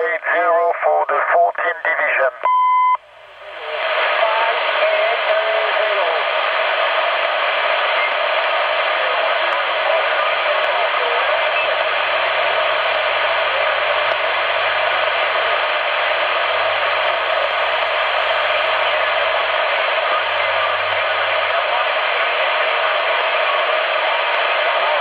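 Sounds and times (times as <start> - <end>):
radio band noise hiss: 0.0 - 25.0.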